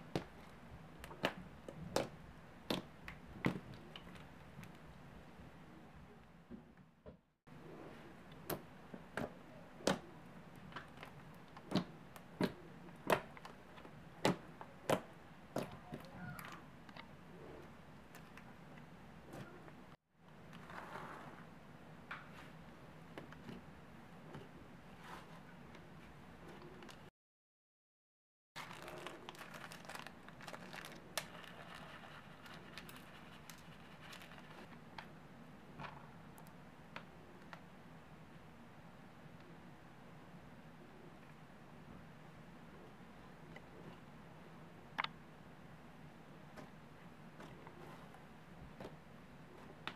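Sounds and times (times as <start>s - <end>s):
sprinkles shaken from plastic bottle: 28.6s - 34.7s.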